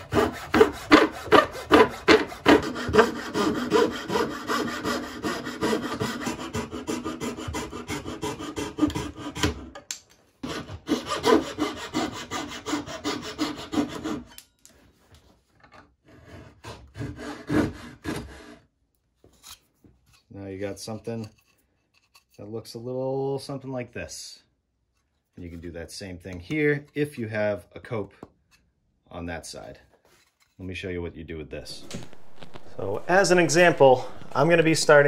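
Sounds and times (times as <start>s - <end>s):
coping saw rasping: 0.0s - 9.7s, 10.4s - 14.3s
faint scrapes and knocks: 29.8s - 30.7s.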